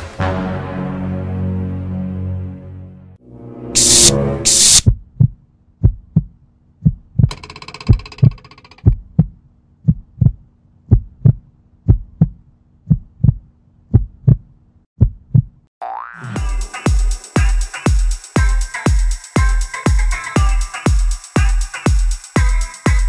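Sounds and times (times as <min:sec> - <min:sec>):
hissing swell: 0:03.5 - 0:04.8
heartbeat thumps: 0:04.8 - 0:07.3, 0:08.8 - 0:15.6.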